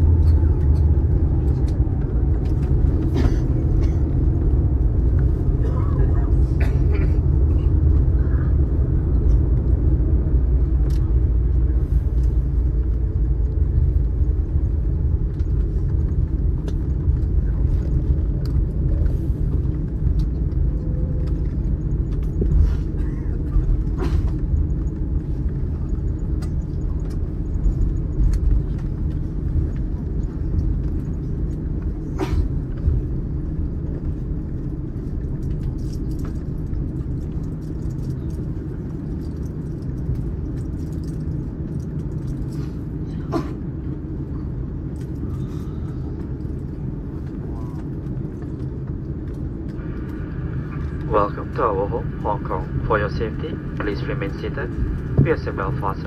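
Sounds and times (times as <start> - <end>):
aircraft engines rumbling at idle: 0.0 - 56.0.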